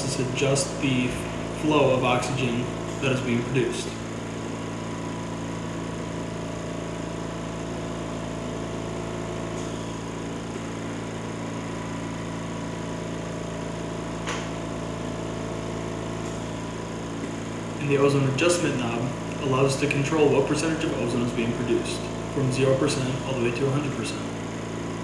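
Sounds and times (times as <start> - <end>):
air compressor humming: 0.0 - 25.0
sharp click: 14.2 - 14.5.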